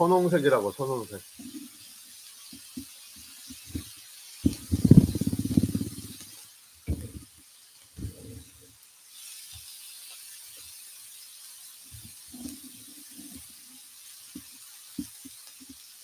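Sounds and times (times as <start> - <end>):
pork sizzling on a grill pan: 0.0 - 16.0.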